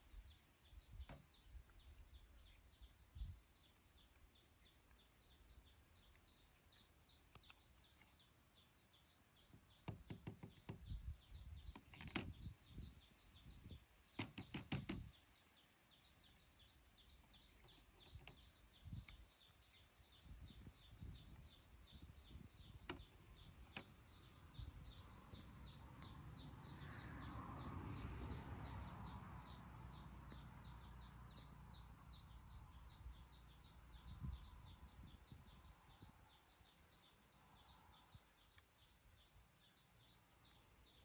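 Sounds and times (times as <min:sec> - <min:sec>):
sharp knocks and clicks: 0:09.5 - 0:11.0, 0:11.6 - 0:12.4, 0:14.2 - 0:15.1, 0:22.8 - 0:24.1.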